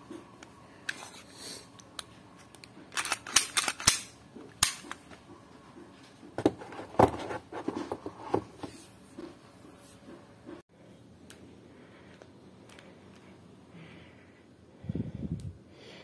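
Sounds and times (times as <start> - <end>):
plastic and metal pistol clacks: 2.6 - 5.0.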